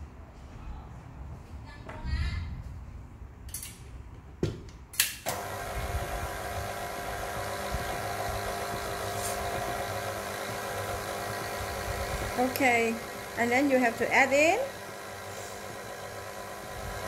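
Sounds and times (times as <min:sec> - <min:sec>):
stand mixer motor beating batter: 0:05.3 - 0:17.0.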